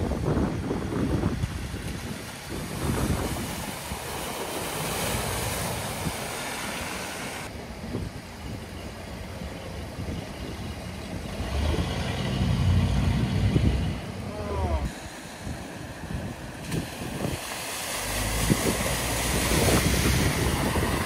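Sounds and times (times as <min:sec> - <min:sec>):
water splashing around wheels: 0:00.0 - 0:21.0
pickup truck engine rumbling: 0:01.6 - 0:14.9.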